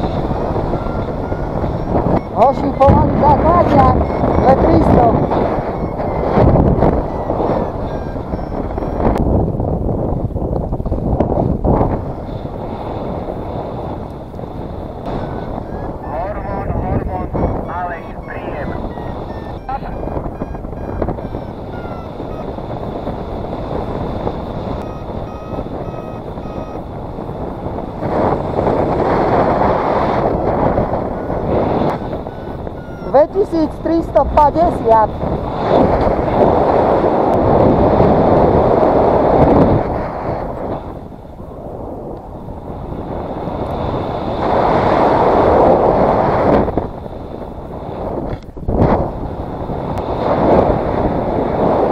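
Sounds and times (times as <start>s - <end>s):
variometer beeping: 0.0s - 9.3s, 15.0s - 28.0s, 30.6s - 35.1s
wind on microphone: 0.0s - 51.9s.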